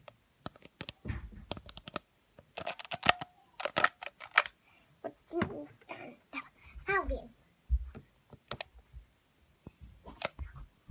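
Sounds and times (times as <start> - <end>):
plastic toys clicking: 0.0 - 4.6.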